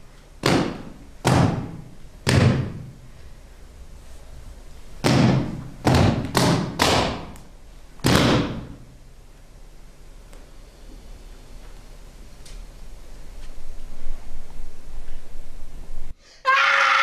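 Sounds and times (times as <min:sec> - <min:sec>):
echoing percussive thuds: 0:00.4 - 0:02.9, 0:05.0 - 0:07.4, 0:08.0 - 0:08.8.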